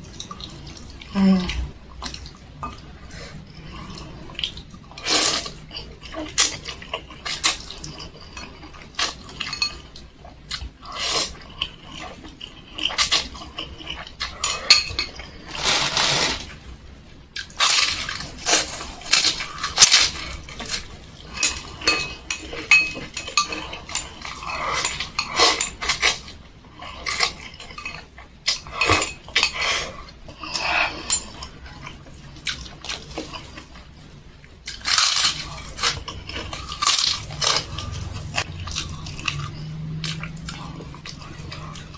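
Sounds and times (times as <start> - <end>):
chewing: 0.1 - 16.1, 17.4 - 41.9
slurping noodles: 15.2 - 16.6.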